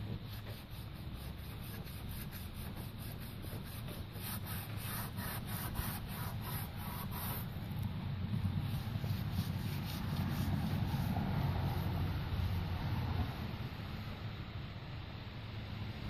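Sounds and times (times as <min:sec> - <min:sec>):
rag rubbing on painted metal: 0:00.0 - 0:07.7, 0:08.6 - 0:12.5.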